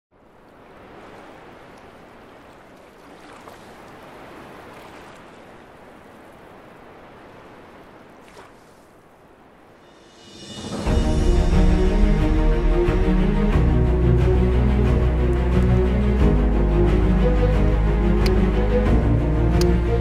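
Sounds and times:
small waves washing: 0.2 - 20.0.

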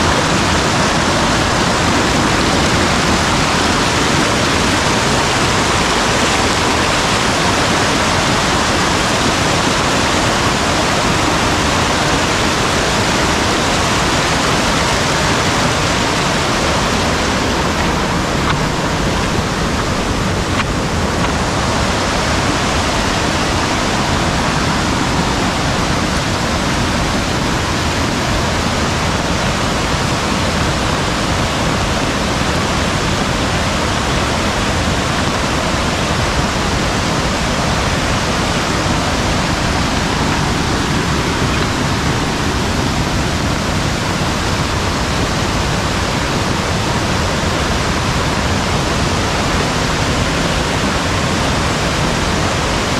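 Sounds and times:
stream water rushing: 0.0 - 52.9.

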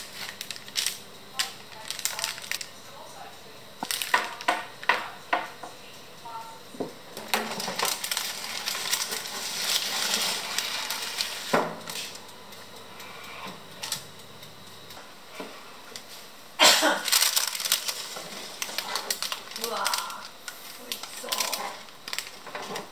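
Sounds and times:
baking paper rustling: 0.0 - 2.8, 3.8 - 4.8, 7.2 - 12.2, 16.8 - 22.9.

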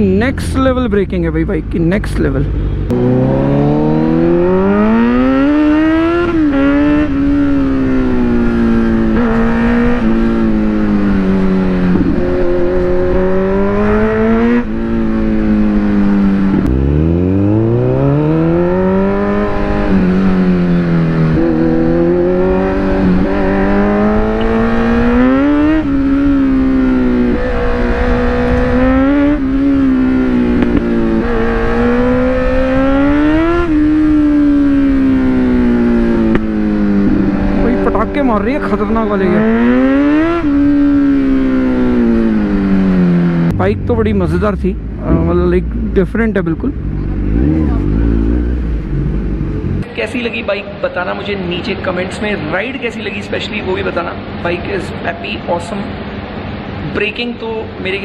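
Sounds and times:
motorcycle engine revving: 2.4 - 50.5.

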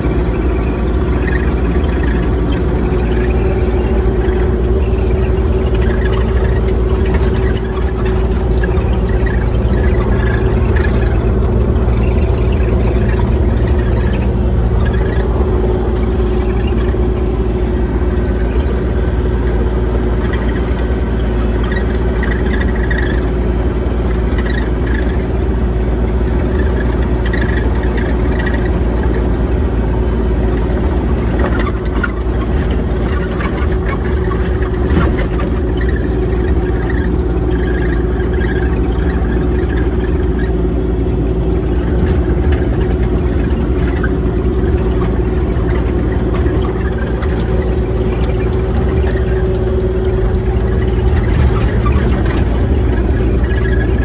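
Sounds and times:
excavator diesel engine running: 0.0 - 54.0
clicks and rattles: 5.5 - 15.4, 31.3 - 40.5, 41.2 - 54.0
faint squeaks: 31.3 - 54.0.

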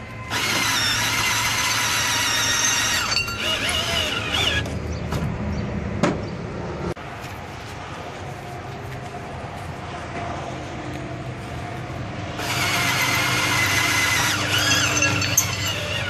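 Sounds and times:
cordless drill motor whining: 0.3 - 4.7, 12.4 - 16.0.

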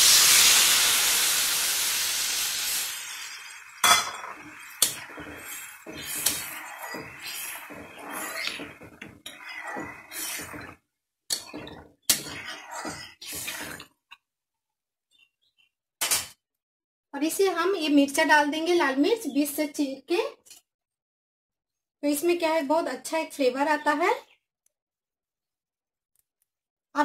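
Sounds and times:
water sizzling in hot oil: 0.0 - 13.8
spatula scraping pan: 3.4 - 13.9.

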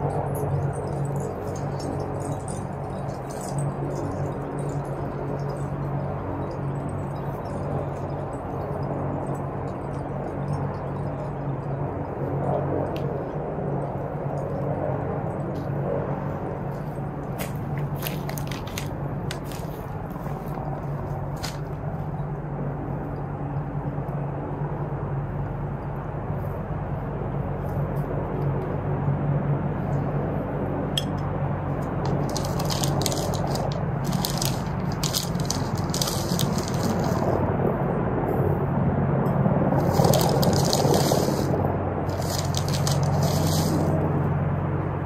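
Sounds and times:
dry granules rattling: 0.0 - 8.4, 17.4 - 21.8, 32.0 - 37.4, 39.8 - 44.0
steady low hum: 0.0 - 45.0
light clicks and crackles: 39.2 - 44.0.

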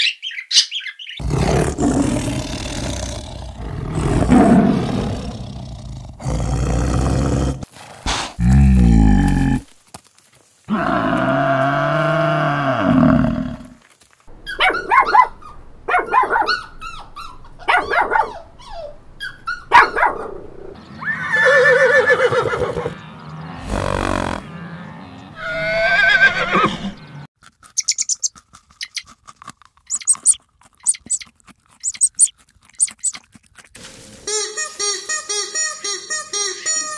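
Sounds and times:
horse snorting: 1.2 - 9.7, 23.6 - 24.7
horse whinnying: 21.0 - 23.0, 25.4 - 27.0
rabbit chewing: 27.4 - 33.8.

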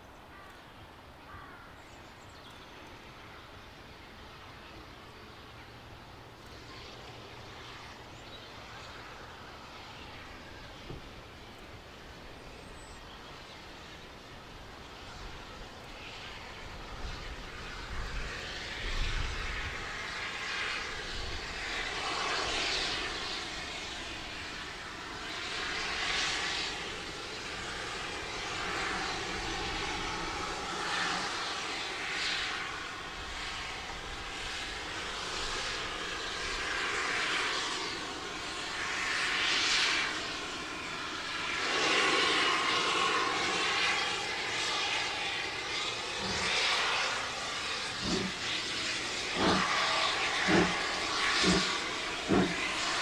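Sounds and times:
steam locomotive chuffing and hissing: 13.2 - 53.0.

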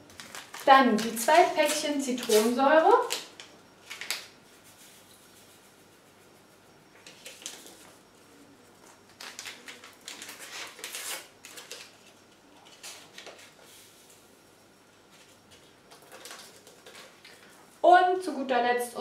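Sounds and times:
paper sachets crinkling: 0.0 - 4.3, 9.1 - 13.7, 15.9 - 17.5.

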